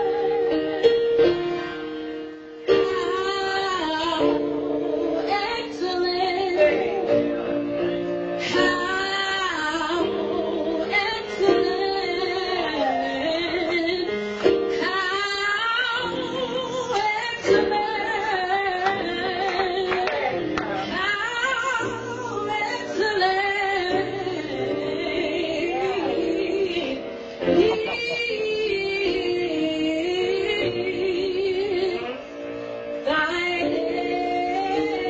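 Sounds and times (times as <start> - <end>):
woman singing with vibrato: 0.0 - 1.3, 2.7 - 7.2, 8.4 - 32.3, 33.0 - 35.0.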